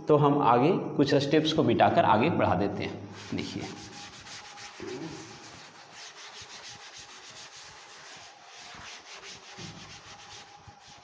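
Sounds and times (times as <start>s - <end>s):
eraser rubbing chalkboard: 3.1s - 11.0s.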